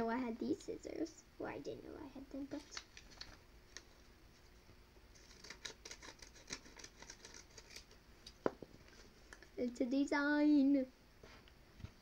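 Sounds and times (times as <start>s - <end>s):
scissors cutting paper: 5.2s - 7.9s.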